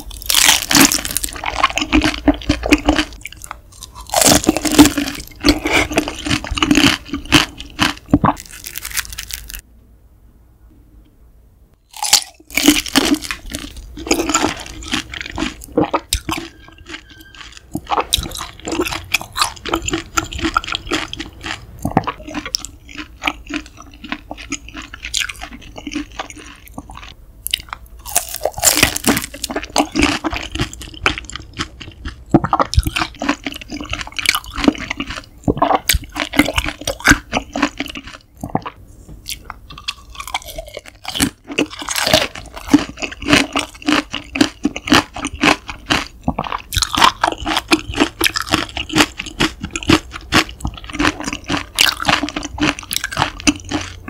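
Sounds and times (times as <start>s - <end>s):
wet bites and chewing: 0.0s - 9.6s, 11.9s - 54.0s
crisp crunches: 3.8s - 9.6s.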